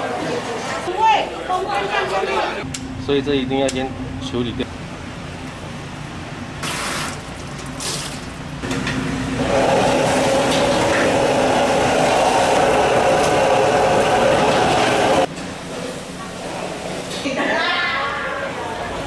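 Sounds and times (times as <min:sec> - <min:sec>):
water running from a tap: 0:09.5 - 0:15.3.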